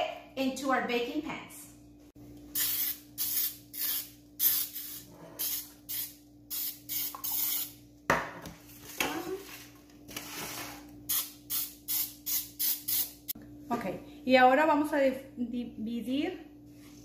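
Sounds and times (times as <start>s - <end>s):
aerosol spray hissing: 2.6s - 7.7s.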